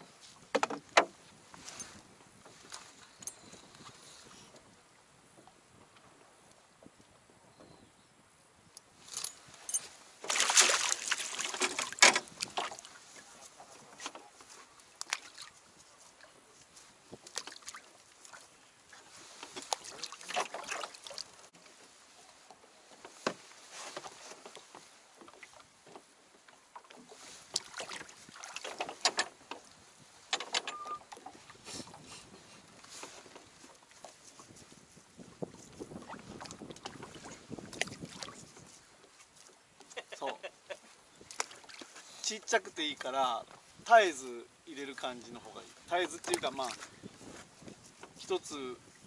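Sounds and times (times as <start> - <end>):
fishing gear knocking and clattering: 0.5 - 1.1, 11.4 - 12.4, 28.7 - 29.5.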